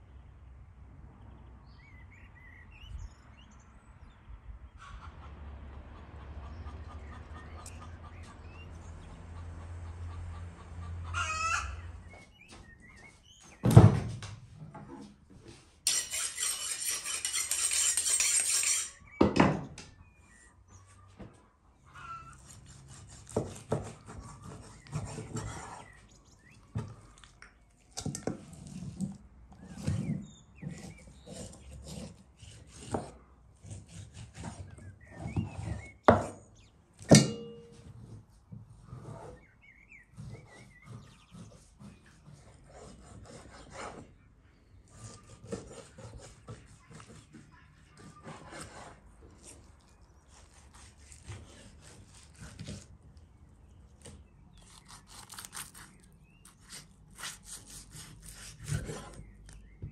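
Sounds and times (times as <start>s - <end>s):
rooster crowing: 11.1s - 11.9s
knife cutting on wooden board: 22.5s - 26.0s, 50.3s - 52.9s, 54.0s - 59.6s.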